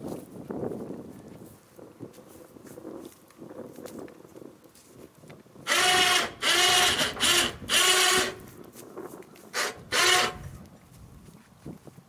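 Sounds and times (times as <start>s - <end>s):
electric winch motor whine: 5.7s - 8.5s, 9.6s - 10.4s.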